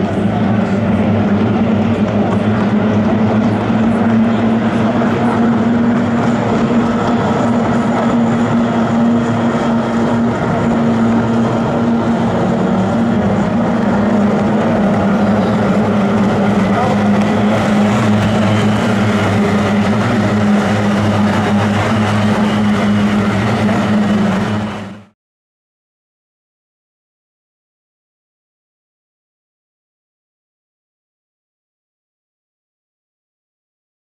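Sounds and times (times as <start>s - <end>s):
outboard engines buzzing: 0.0s - 25.2s.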